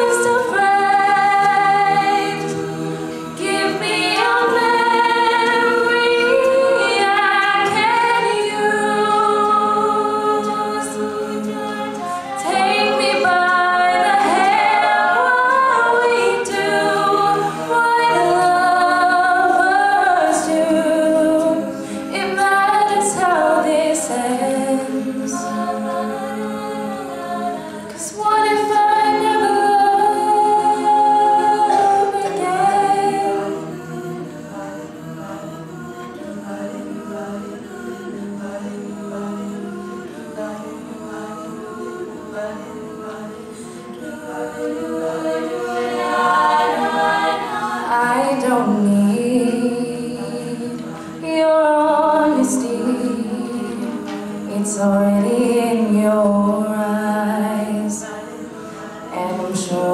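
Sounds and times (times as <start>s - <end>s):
women singing in harmony: 0.0s - 59.9s.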